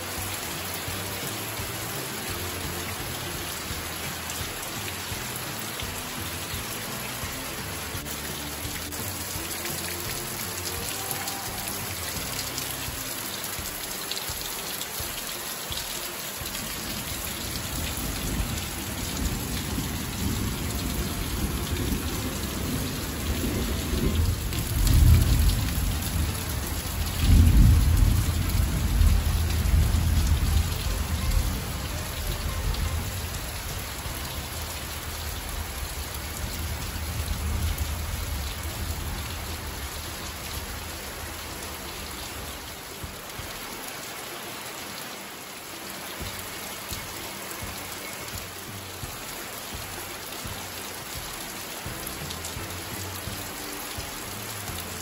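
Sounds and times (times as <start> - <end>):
heavy rain: 0.0 - 55.0
low rolling thunder: 17.7 - 33.9.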